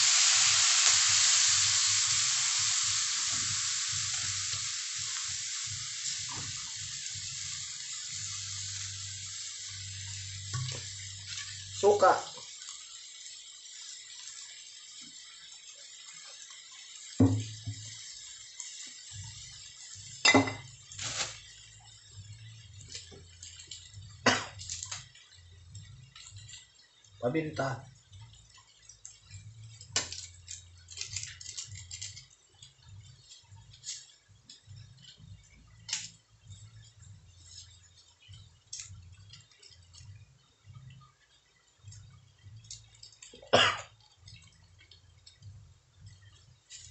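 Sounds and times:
hiss of cooking in a wok: 0.0 - 46.9
cookware and utensils clinking: 20.1 - 40.2.

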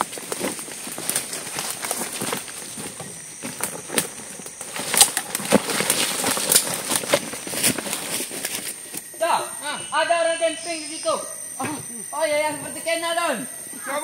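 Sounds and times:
footsteps crunching through dry leaves: 0.0 - 9.1
twigs crackling underfoot: 0.0 - 9.2.

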